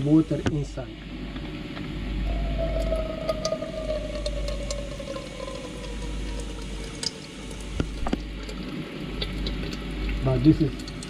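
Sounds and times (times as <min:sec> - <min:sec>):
fuel draining into jug: 0:02.3 - 0:11.0.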